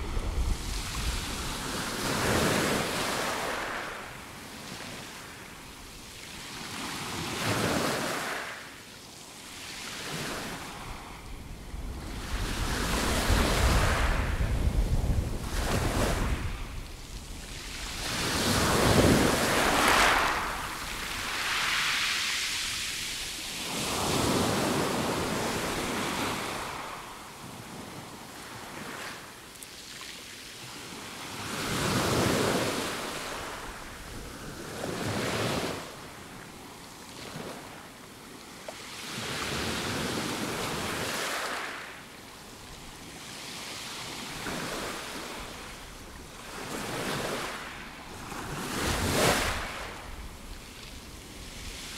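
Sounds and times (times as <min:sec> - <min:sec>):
waves washing up pebble beach: 0:00.0 - 0:04.2, 0:12.0 - 0:27.1.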